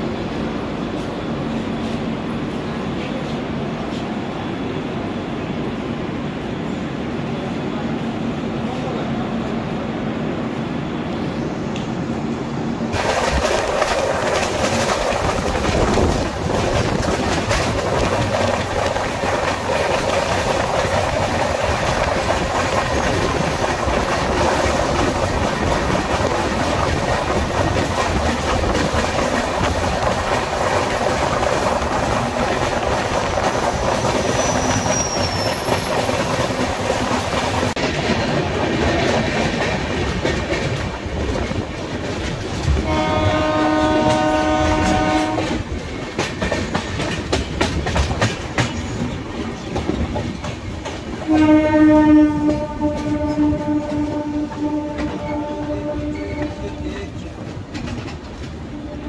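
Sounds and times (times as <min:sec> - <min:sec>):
train wheels clattering on rails: 0:12.9 - 0:59.0
train horn: 0:42.8 - 0:45.6, 0:51.2 - 0:57.1, 0:58.7 - 0:59.0.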